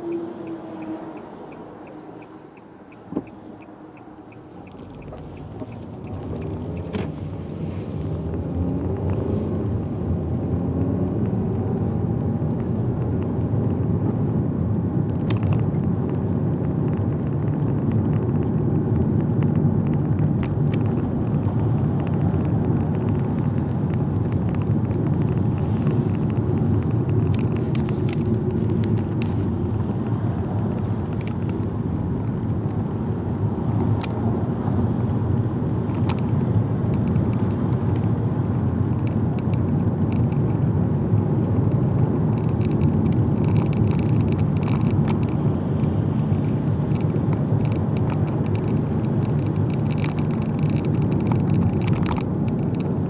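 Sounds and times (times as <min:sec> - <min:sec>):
car engine rumble: 0:00.0 - 0:53.0
road noise: 0:00.0 - 0:53.0.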